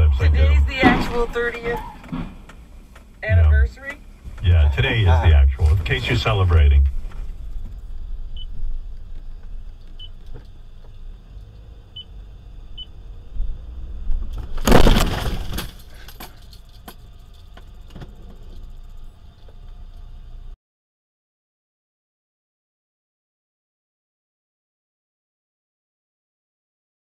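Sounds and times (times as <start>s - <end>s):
car cabin road noise: 0.0s - 20.6s.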